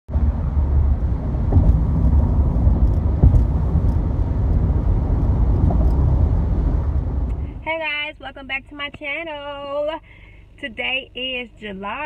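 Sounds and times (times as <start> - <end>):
tyre and engine rumble: 0.1 - 8.6.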